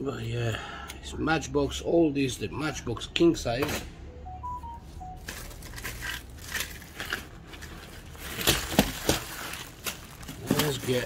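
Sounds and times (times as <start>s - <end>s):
packaging rustling: 5.2s - 11.0s.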